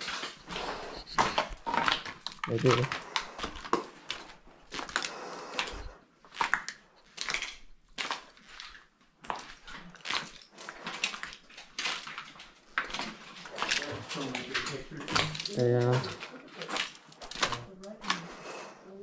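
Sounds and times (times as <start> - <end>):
footsteps crunching over debris: 0.0 - 18.2.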